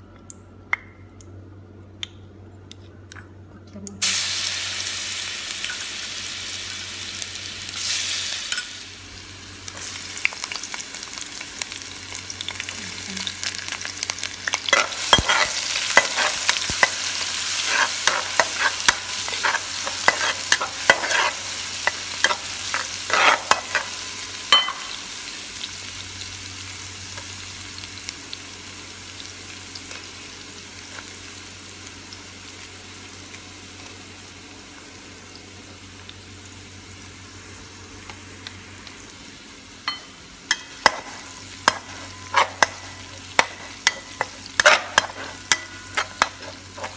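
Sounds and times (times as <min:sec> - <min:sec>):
food sizzling in hot oil: 0:04.0 - 0:46.9
spatula scraping a pan: 0:14.7 - 0:24.0, 0:40.8 - 0:46.9.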